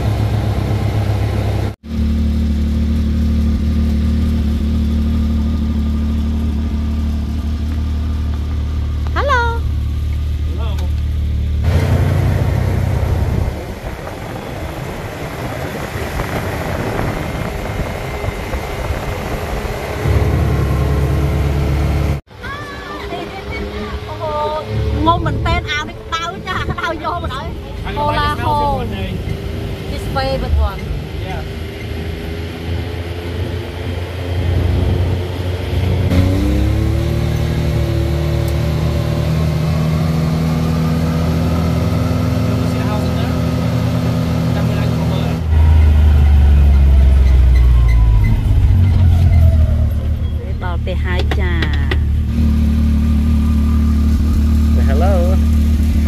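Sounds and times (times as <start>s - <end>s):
heavy low rumble: 0.0s - 31.8s, 44.1s - 56.0s
vehicle engine drone: 0.0s - 56.0s
wind noise: 12.2s - 22.2s.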